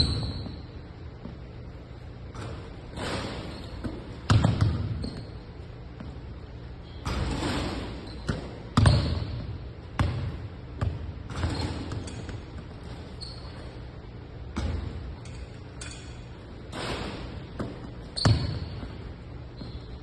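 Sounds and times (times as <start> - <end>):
basketball bouncing on hardwood floor: 3.8 - 5.3, 8.2 - 13.0, 14.5 - 15.0, 17.6 - 19.0.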